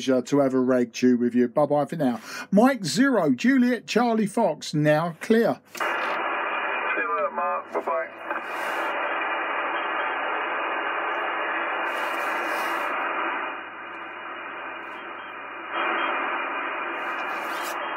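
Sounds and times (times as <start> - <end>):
radio static and hiss: 5.3 - 17.9.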